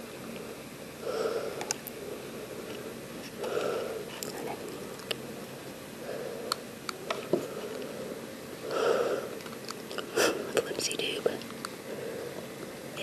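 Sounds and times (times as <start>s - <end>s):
person breathing out through nose: 1.0s - 4.2s, 7.4s - 9.4s.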